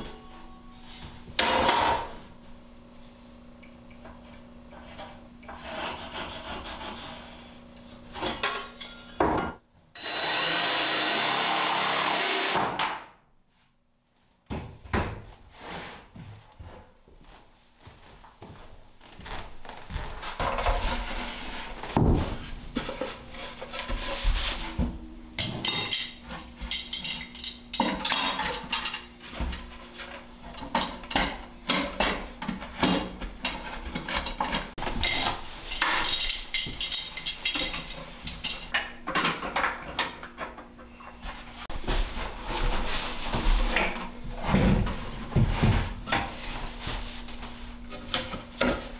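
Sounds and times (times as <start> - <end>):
panels scraping and rubbing: 4.3 - 7.6, 15.5 - 16.3, 20.2 - 24.8.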